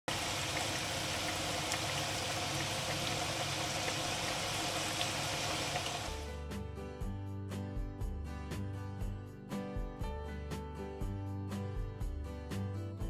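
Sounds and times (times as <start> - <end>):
oil popping: 0.1 - 6.1
food sizzling in hot oil: 0.1 - 6.4.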